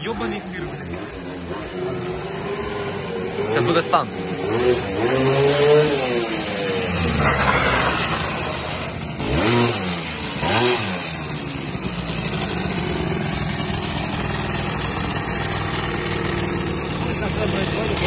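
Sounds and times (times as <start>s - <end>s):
scooter engine revving and idling: 0.0s - 18.0s.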